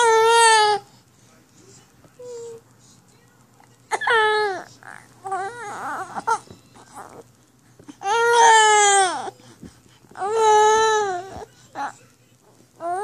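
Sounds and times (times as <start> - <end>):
baby crying: 3.9 - 6.4, 8.0 - 9.3, 10.2 - 11.9, 12.8 - 13.0.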